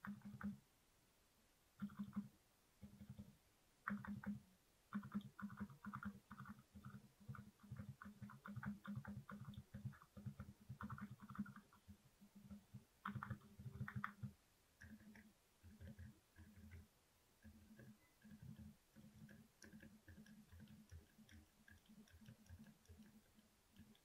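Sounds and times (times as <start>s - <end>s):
mechanical keyboard typing: 0.0s - 0.6s, 1.8s - 24.0s.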